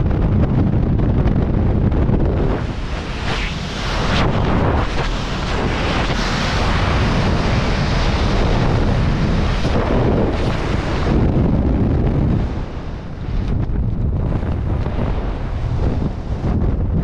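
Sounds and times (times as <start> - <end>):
wind blasting over microphone: 0.0 - 17.0.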